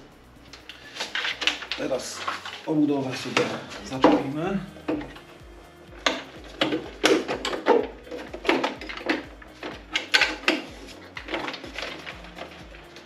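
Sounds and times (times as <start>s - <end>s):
hard clicks and knocks: 3.3s - 13.0s.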